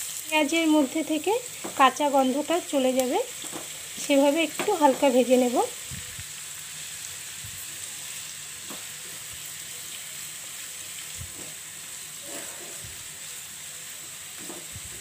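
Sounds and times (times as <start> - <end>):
onions sizzling in a pan: 0.0 - 15.0
spatula scraping a pan: 11.4 - 13.0.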